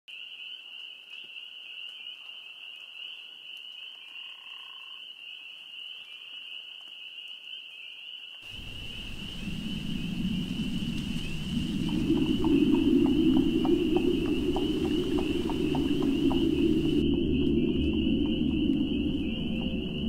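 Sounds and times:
low rumbling noise: 8.5s - 20.0s
night animals trilling: 8.5s - 20.0s.

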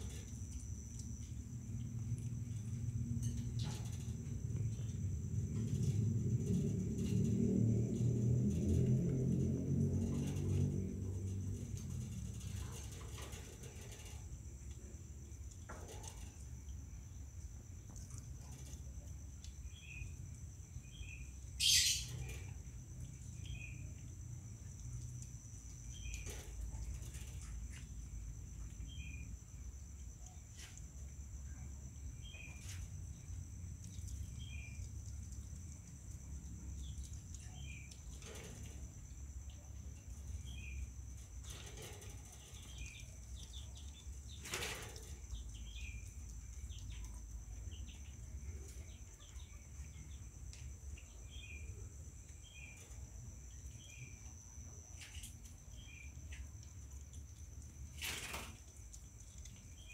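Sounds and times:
low rumble: 0.0s - 15.6s.

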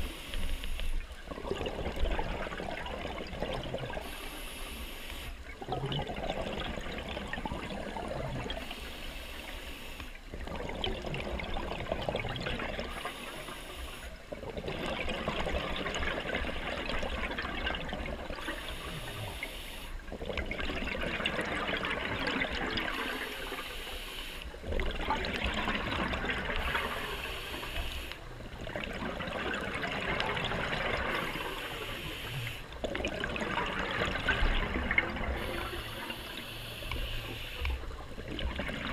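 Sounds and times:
underwater regulator breathing: 0.0s - 1.0s, 3.9s - 5.4s, 12.8s - 14.2s, 18.4s - 20.0s, 22.8s - 24.6s, 26.5s - 28.3s, 31.0s - 33.0s, 34.6s - 38.0s
exhaled bubbles rushing: 1.1s - 4.2s, 5.4s - 8.7s, 10.3s - 13.1s, 14.3s - 19.2s, 20.1s - 23.6s, 24.5s - 27.6s, 28.2s - 31.7s, 32.7s - 36.4s, 37.8s - 38.9s.

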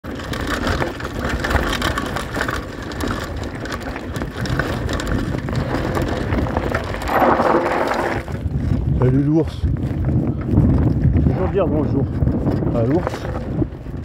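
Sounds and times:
bike rattling: 0.0s - 14.0s
bike tyres crunching on gravel: 0.1s - 14.0s.

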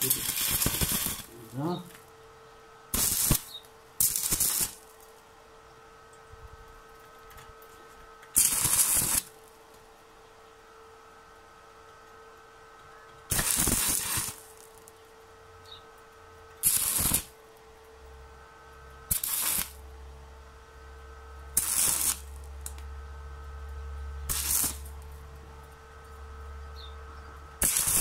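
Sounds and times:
welding arc bursts: 0.0s - 2.0s, 2.9s - 5.0s, 8.3s - 9.4s, 13.3s - 14.9s, 16.6s - 17.4s, 19.1s - 19.8s, 21.5s - 22.8s, 24.3s - 25.1s, 27.6s - 28.0s
faint steady hum: 0.0s - 28.0s.

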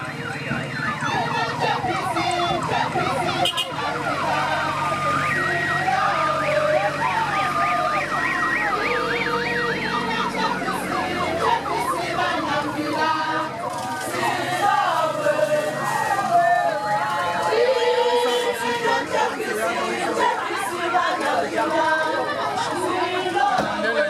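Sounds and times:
electronic vehicle siren: 0.0s - 19.0s.

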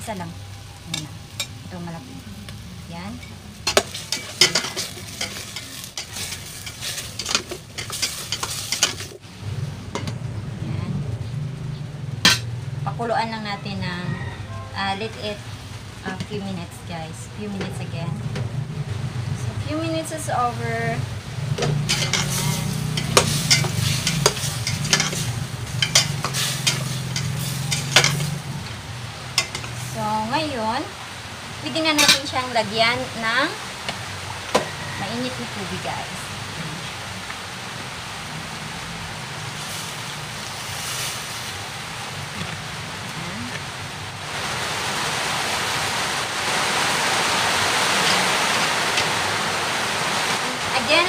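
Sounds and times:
food sizzling in a pot: 0.0s - 51.0s
utensil scraping a pot: 3.2s - 9.2s, 21.6s - 28.5s
steady low hum: 14.8s - 33.0s.

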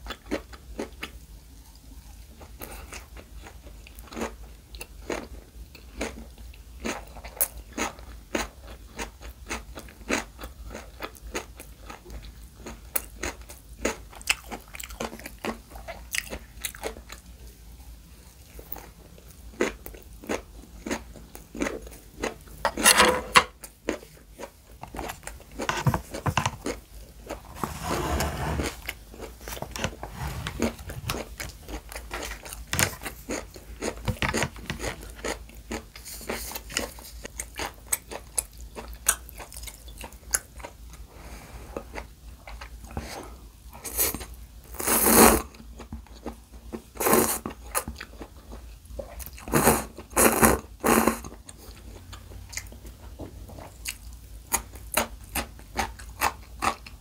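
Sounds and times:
slurping noodles: 27.5s - 31.6s.

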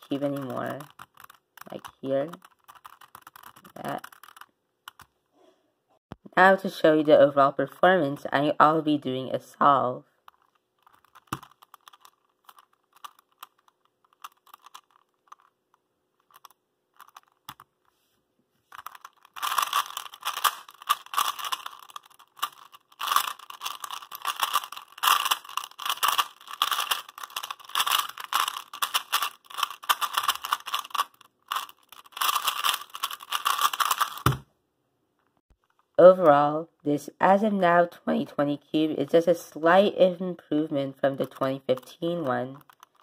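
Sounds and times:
puzzle cube turning clicks: 0.0s - 5.1s, 10.2s - 17.9s, 18.7s - 34.4s, 41.2s - 43.0s
rapid crunchy cube turns: 0.0s - 5.1s, 10.2s - 18.0s, 18.6s - 34.4s, 41.2s - 43.0s
cube set down on desk: 34.2s - 34.4s.

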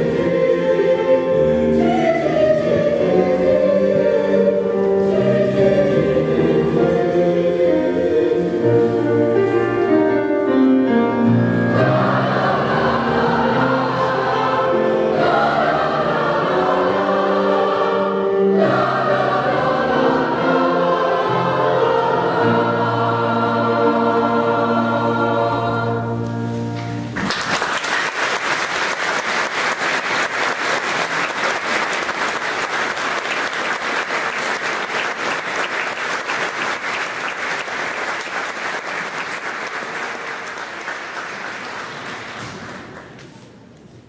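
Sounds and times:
boys' choir singing chord: 0.0s - 26.7s
audience applause: 27.2s - 43.2s.

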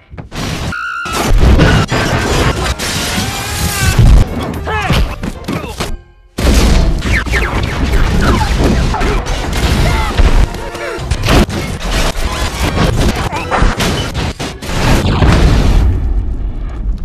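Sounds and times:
action film music: 0.7s - 16.7s
booms and crashes: 6.4s - 10.5s, 11.1s - 17.0s.

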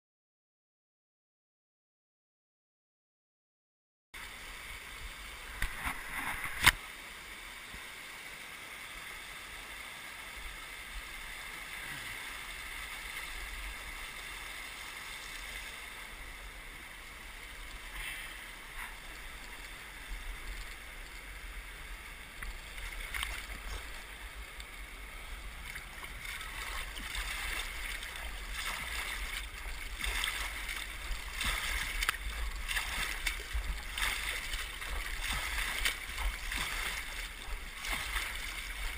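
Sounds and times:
water splashing and sloshing: 4.2s - 7.0s, 10.6s - 38.9s
river water rushing over rocks: 4.2s - 38.9s.

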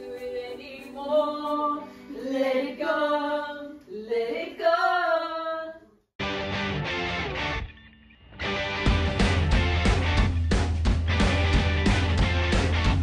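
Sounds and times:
women singing slow melody: 0.0s - 5.9s.

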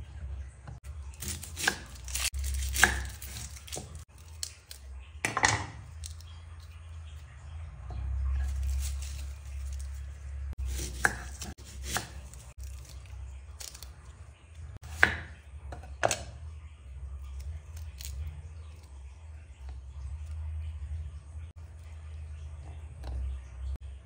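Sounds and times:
knife chopping on wooden board: 1.2s - 3.9s, 10.6s - 12.3s, 14.8s - 16.3s.

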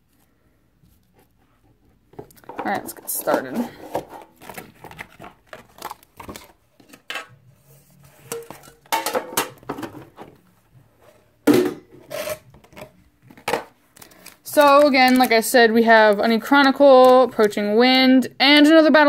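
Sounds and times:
metal lid clattering: 8.3s - 10.0s
metal tin knocks and clinks: 8.3s - 10.0s.

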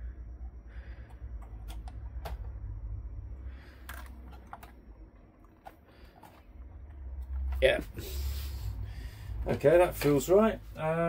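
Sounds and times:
memory modules clicking into sockets: 1.0s - 2.8s.

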